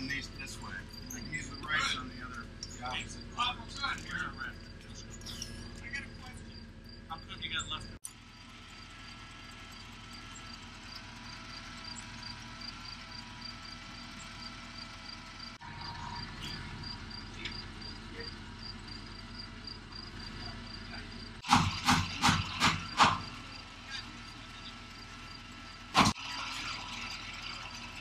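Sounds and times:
cricket chirping: 0.0 - 8.0, 8.8 - 21.4.

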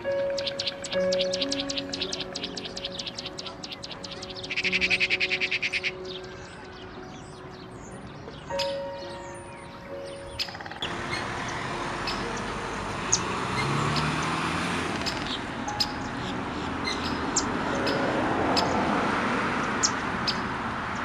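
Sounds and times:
high bird chirps: 0.0 - 18.8
outdoor background noise: 0.0 - 21.0.

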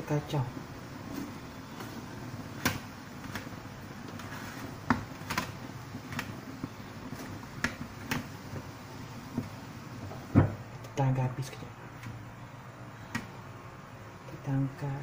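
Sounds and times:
steady low hiss: 0.0 - 15.0
wooden spatula scraping metal tray: 4.1 - 5.3.

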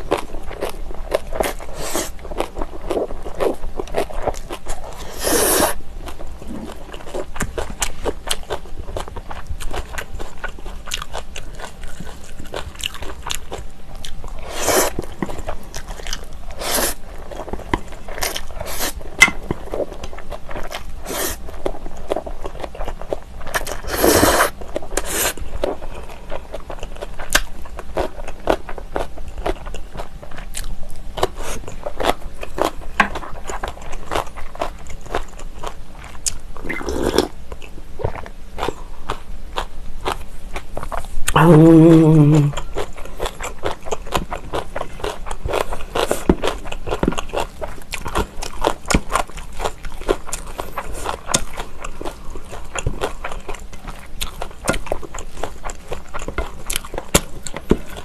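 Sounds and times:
chewing and crunching noodles: 0.0 - 58.0
slurping noodles: 5.0 - 5.8, 16.6 - 17.0, 21.0 - 21.4, 23.8 - 25.4.

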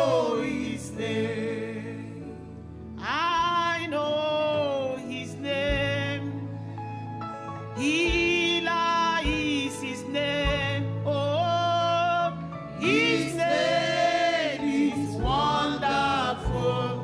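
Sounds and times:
keyboard accompaniment: 0.0 - 17.0
woman singing gospel song: 3.0 - 6.5, 7.8 - 13.6
deep beats: 7.8 - 11.5, 12.8 - 17.0.

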